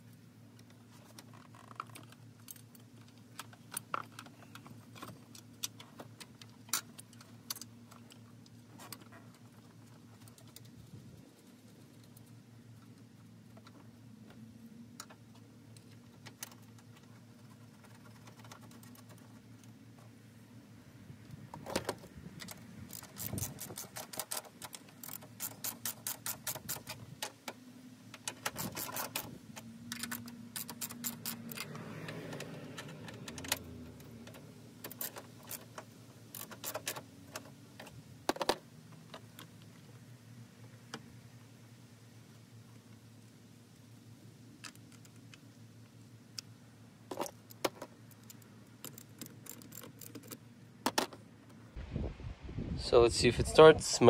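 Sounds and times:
socket ratchet clicking: 0:22.9 - 0:27.0, 0:29.9 - 0:31.7.

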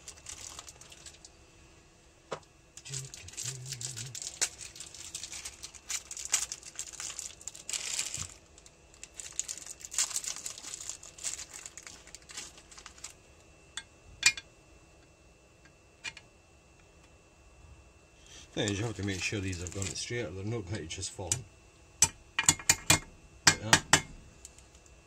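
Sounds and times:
packaging crinkling and rustling: 0:00.0 - 0:01.4, 0:02.8 - 0:13.2, 0:18.4 - 0:20.2.

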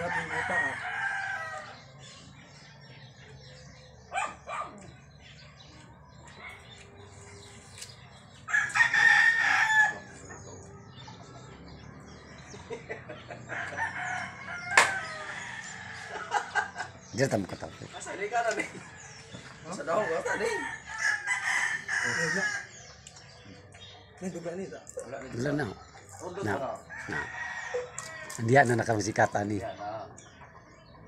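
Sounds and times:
rooster crowing: 0:00.0 - 0:01.8, 0:08.5 - 0:10.1, 0:13.5 - 0:16.4, 0:20.0 - 0:22.7, 0:26.9 - 0:28.4.

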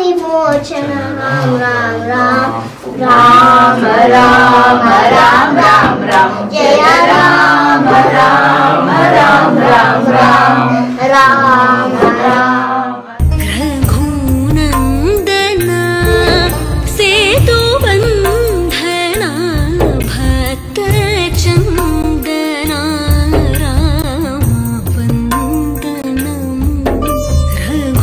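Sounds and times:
devotional singing: 0:00.8 - 0:27.0
music: 0:13.2 - 0:28.0.

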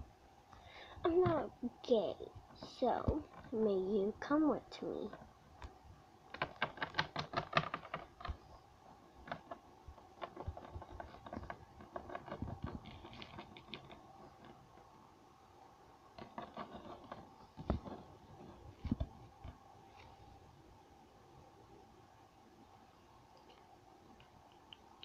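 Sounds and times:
plastic figures clicking on table: 0:05.1 - 0:08.4.

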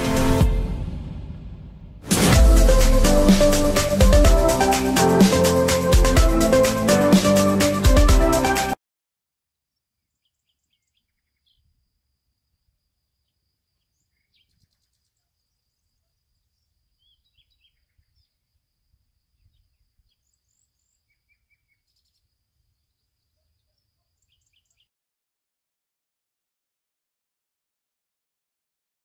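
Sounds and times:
bird chirps: 0:19.4 - 0:24.9.

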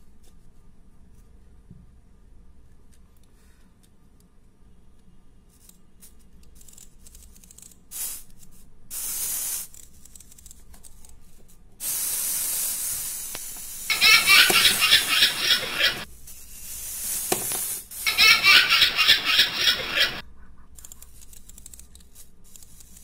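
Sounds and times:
toy winding clicks: 0:05.5 - 0:11.4, 0:20.8 - 0:23.0
clockwork whirring hiss: 0:05.6 - 0:20.2.

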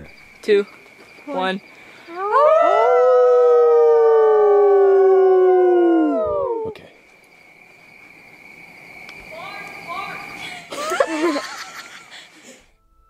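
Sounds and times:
people howling: 0:02.1 - 0:06.8.

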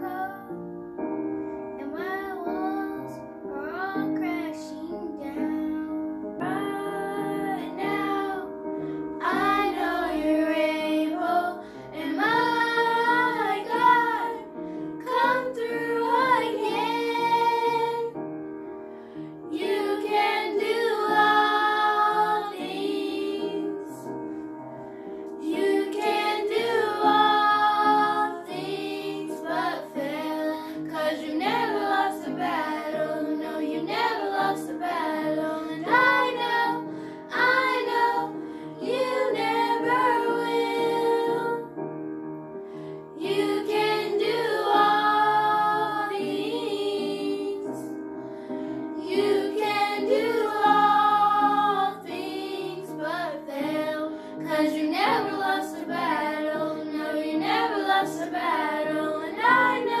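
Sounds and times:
girls singing together: 0:06.4 - 0:18.2, 0:19.4 - 0:24.2, 0:25.3 - 0:41.8, 0:43.1 - 0:48.0, 0:49.0 - 1:00.0.

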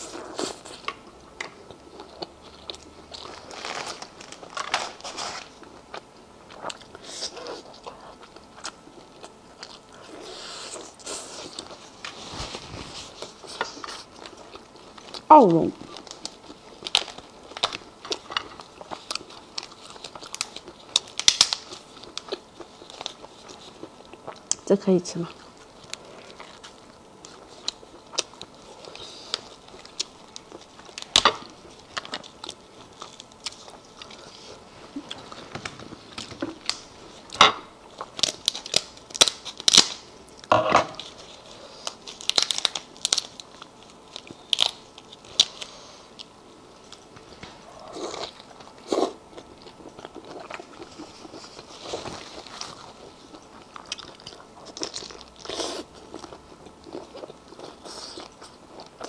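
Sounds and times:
wet chewing and biting: 0:13.1 - 0:24.6, 0:47.8 - 0:59.0.

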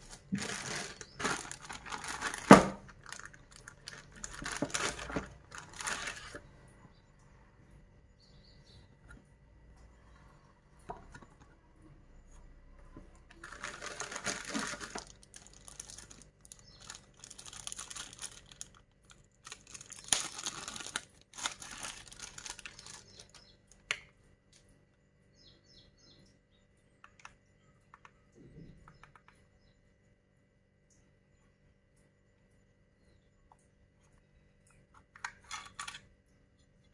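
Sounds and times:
plastic bags crinkling: 0:00.0 - 0:06.4, 0:13.3 - 0:23.5.

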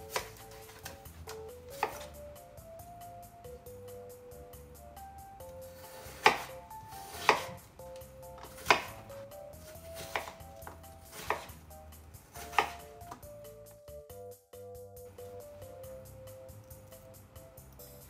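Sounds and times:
knife chopping on wooden board: 0:00.0 - 0:02.2, 0:05.5 - 0:13.3.

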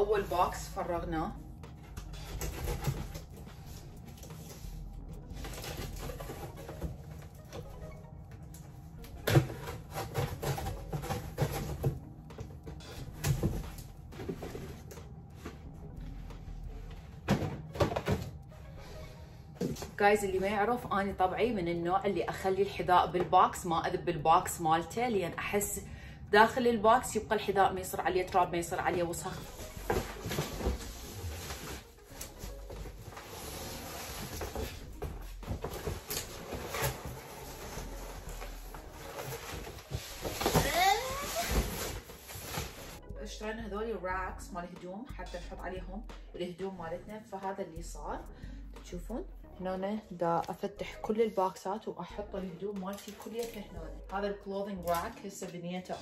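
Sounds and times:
cardboard boxes being handled: 0:09.2 - 0:15.6, 0:29.4 - 0:43.0.

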